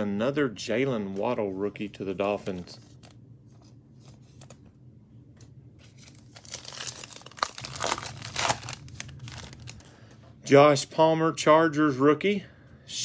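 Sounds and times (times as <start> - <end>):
foil wrapper tearing and crinkling: 6.0 - 9.9.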